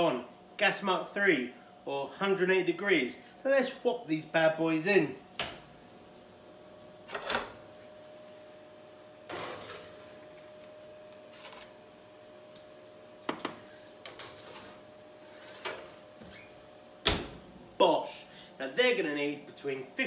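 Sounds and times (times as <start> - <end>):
faint steady hum: 0.0 - 20.0
metal tray scraping: 9.3 - 10.2, 14.1 - 16.0.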